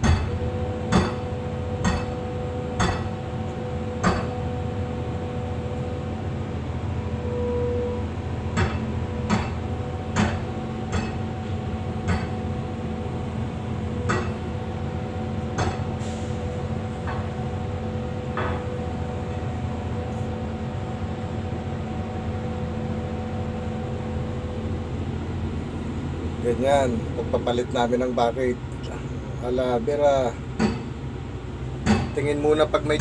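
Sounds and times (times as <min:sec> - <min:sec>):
hammer striking steel pins: 0:00.0 - 0:02.2, 0:02.8 - 0:03.2, 0:04.0 - 0:04.4, 0:08.5 - 0:11.3, 0:12.0 - 0:12.5, 0:14.0 - 0:14.4, 0:15.6 - 0:15.9, 0:30.6 - 0:30.9, 0:31.8 - 0:32.3
excavator engine idling: 0:00.0 - 0:33.0.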